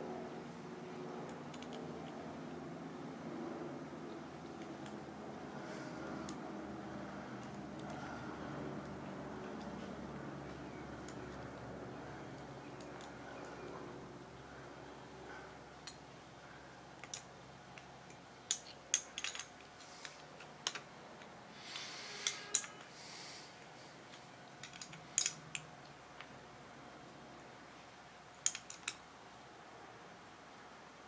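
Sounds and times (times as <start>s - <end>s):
small metal parts clicking and tapping: 1.3s - 2.2s, 7.4s - 8.0s, 11.0s - 11.4s, 17.0s - 22.9s, 24.1s - 26.3s, 28.4s - 29.0s.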